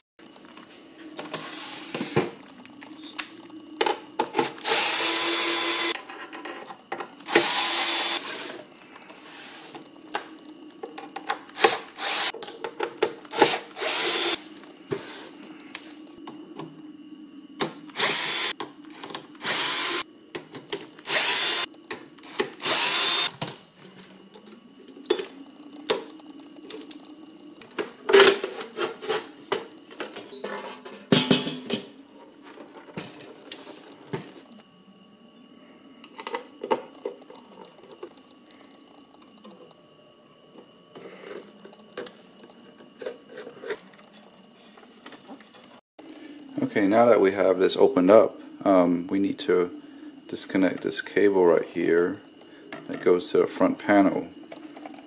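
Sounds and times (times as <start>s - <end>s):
cordless drill running: 4.6s - 6.0s, 7.2s - 8.5s, 11.6s - 12.3s, 13.3s - 14.4s, 17.9s - 20.0s, 21.0s - 23.3s.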